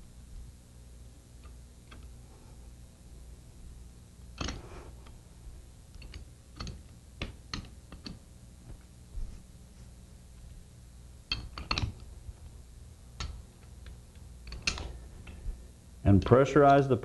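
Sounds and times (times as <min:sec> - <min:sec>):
wrench clicking on bolts: 0:04.4 - 0:04.6, 0:11.3 - 0:12.0, 0:13.2 - 0:14.9.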